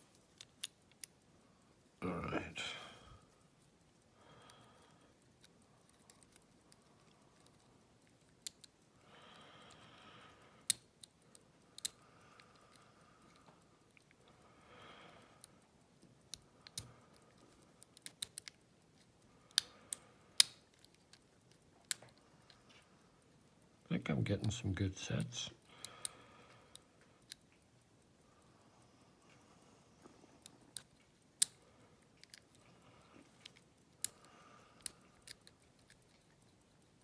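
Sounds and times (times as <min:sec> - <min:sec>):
lock pick clicking on pins: 0:00.0 - 0:01.9, 0:03.2 - 0:14.4, 0:15.3 - 0:28.2, 0:30.4 - 0:37.0
soft hissing: 0:00.0 - 0:37.0.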